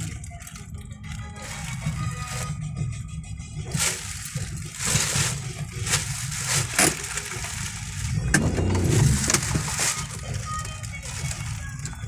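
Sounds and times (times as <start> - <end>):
car interior rumble: 0.0 - 12.0.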